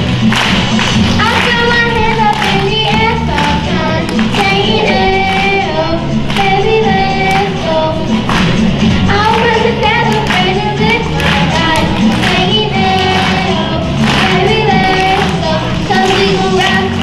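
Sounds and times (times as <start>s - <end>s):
pop backing track: 0.0s - 17.0s
child singing into a microphone: 1.2s - 8.1s, 9.1s - 17.0s.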